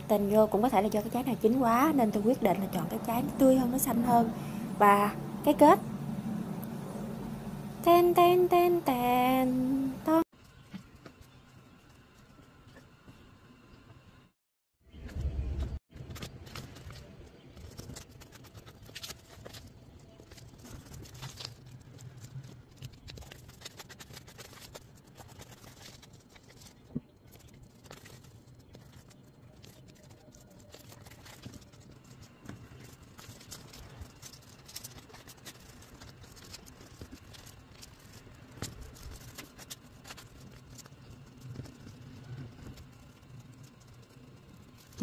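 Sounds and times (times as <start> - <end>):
steady low hum: 0.0 - 14.4
paper banknote crinkling: 15.9 - 45.0.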